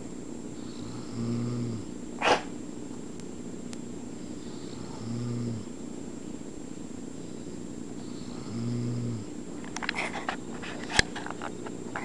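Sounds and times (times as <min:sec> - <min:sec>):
man snoring: 0:00.6 - 0:01.9, 0:04.4 - 0:05.7, 0:08.0 - 0:09.3.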